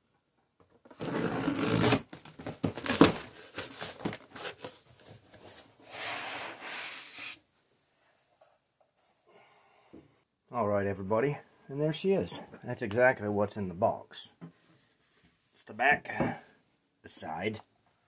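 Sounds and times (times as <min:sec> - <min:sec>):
cardboard flaps rustling: 0:00.9 - 0:05.8
cardboard tearing: 0:01.0 - 0:04.8
cardboard scraping rub: 0:03.5 - 0:07.4.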